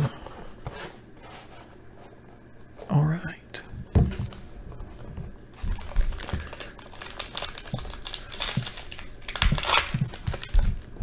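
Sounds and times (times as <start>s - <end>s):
foil wrapper crinkling: 5.5s - 11.0s.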